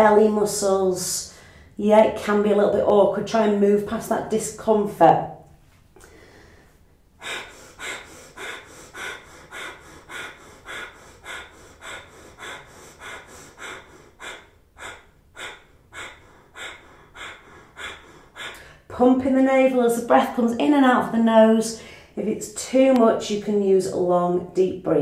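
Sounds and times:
woman breathing rapidly through nose: 1.3s - 1.8s, 6.0s - 18.9s, 21.8s - 22.2s.

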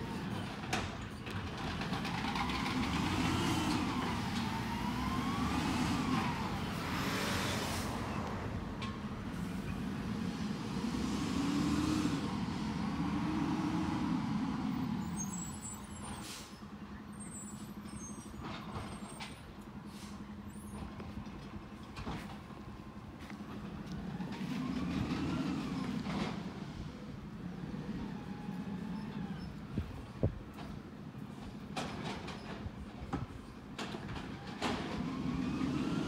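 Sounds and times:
truck engine revving: 1.4s - 8.2s, 9.4s - 15.7s, 23.8s - 29.6s, 34.4s - 36.0s
air brakes hissing: 15.0s - 20.9s.

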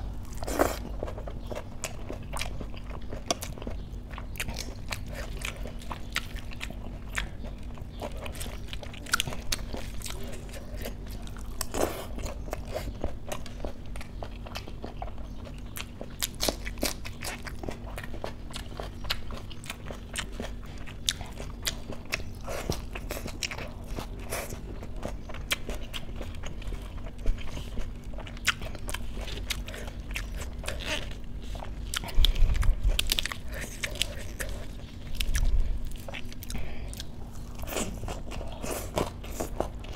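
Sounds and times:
chewing crisp lettuce: 0.0s - 39.9s.

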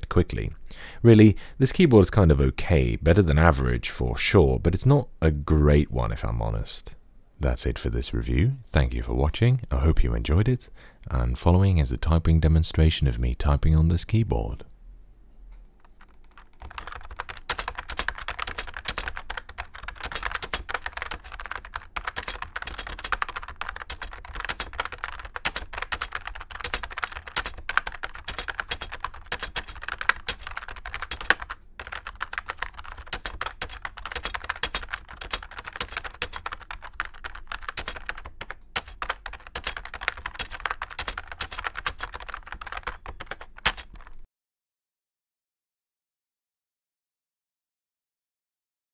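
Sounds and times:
fast typing on keyboard: 15.8s - 44.3s.

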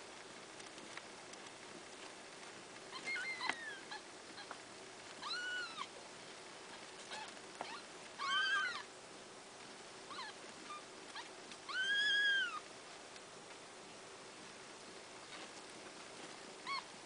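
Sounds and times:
kittens mewing: 5.2s - 6.0s, 7.0s - 8.9s.

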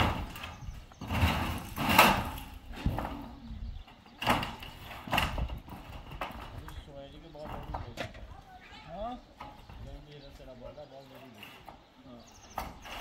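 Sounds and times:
knocks on metal sheets: 0.0s - 3.2s.

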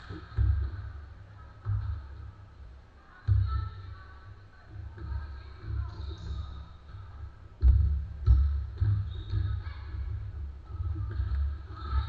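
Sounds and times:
basketball bouncing on hardwood floor: 7.6s - 10.2s.

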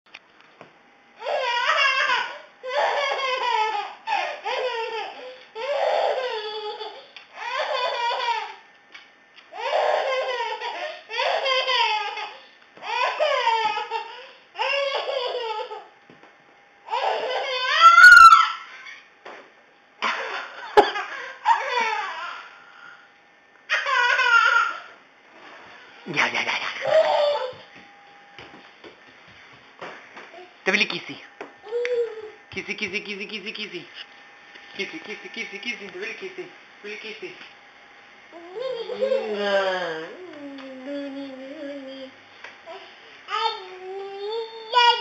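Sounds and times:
baby laughing: 1.2s - 8.6s, 9.6s - 15.9s, 20.0s - 22.6s, 23.7s - 25.0s, 26.1s - 27.6s.

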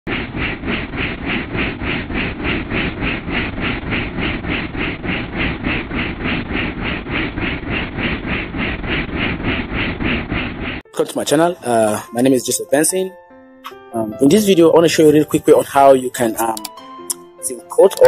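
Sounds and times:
helicopter rotor rumble: 0.1s - 10.9s.

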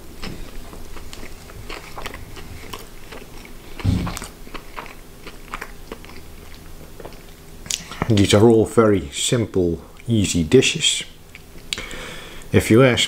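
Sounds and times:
crisp batter crunching: 0.0s - 8.4s
wet clicking chewing: 0.2s - 8.3s.

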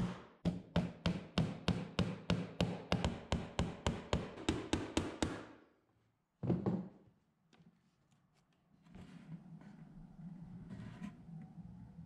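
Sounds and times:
hammer tapping a nail: 0.0s - 5.5s.

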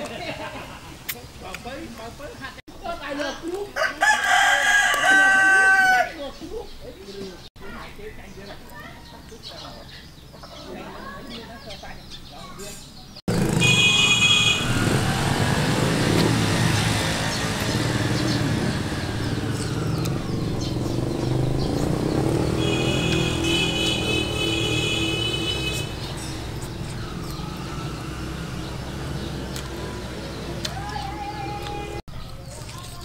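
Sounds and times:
vehicle engine running: 13.3s - 32.8s.

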